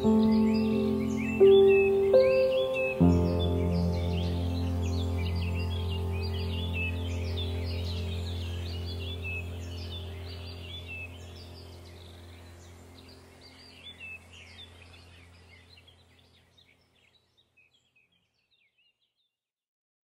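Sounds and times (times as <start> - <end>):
steady low drone: 0.0 - 16.0
small birds chirping: 0.0 - 19.4.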